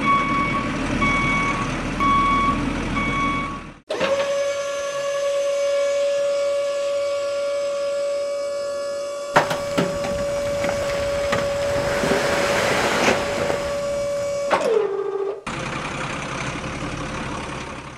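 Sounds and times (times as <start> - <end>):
engine-like hum: 0.0 - 3.9, 9.4 - 17.9
steady whine: 9.4 - 14.5
sand pouring from toy truck: 11.7 - 14.0.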